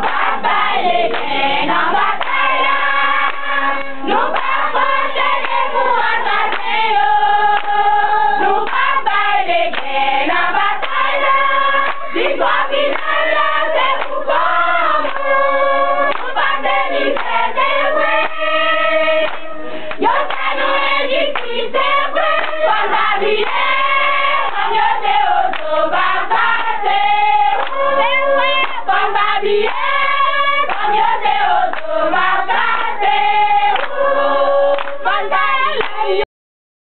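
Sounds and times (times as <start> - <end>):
hands clapping: 0.0 - 6.8, 7.5 - 10.0, 10.6 - 14.3, 15.0 - 15.4, 16.1 - 18.4, 19.2 - 26.8, 27.5 - 31.9, 33.7 - 34.1, 34.7 - 36.0
women singing in chorus: 0.0 - 36.3.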